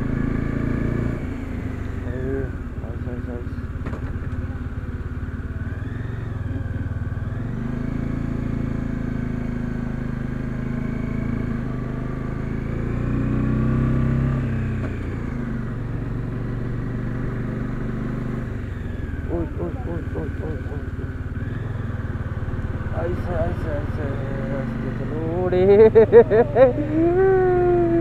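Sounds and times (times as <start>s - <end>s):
motorcycle engine revving: 0.0s - 28.0s.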